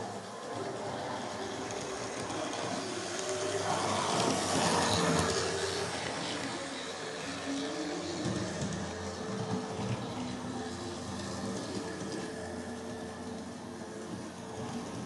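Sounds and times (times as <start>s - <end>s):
model train rumbling past: 0.0s - 15.0s.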